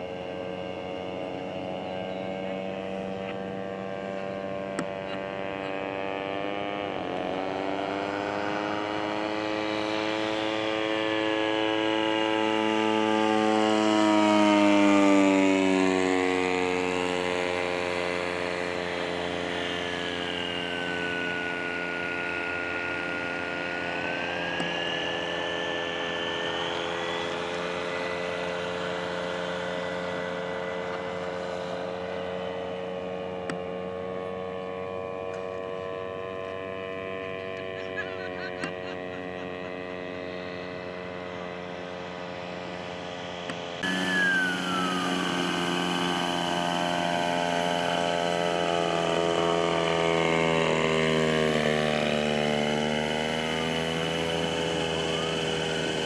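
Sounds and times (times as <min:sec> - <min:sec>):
higher whine gliding: 0:00.0 - 0:56.0
model airplane motor droning: 0:00.0 - 0:56.0.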